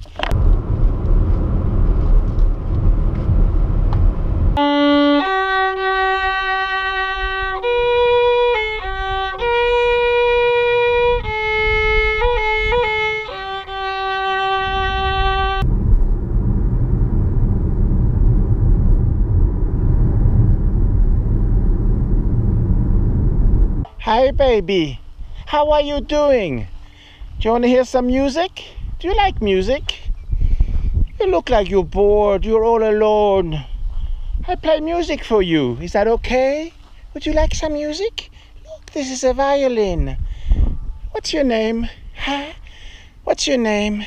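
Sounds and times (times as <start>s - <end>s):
car road noise rumble: 0.0s - 24.0s
solo violin slow melody: 4.6s - 15.6s.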